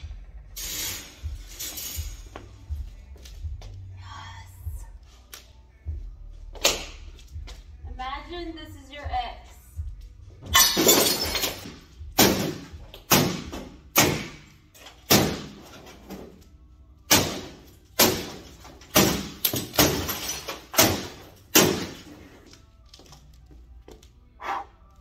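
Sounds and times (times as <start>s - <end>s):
hatchet smashing television: 10.6s - 16.3s, 17.1s - 22.2s.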